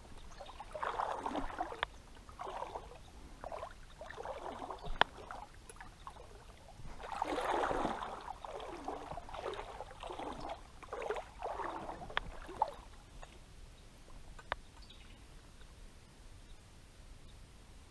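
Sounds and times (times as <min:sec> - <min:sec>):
water sloshing: 0:00.0 - 0:13.4.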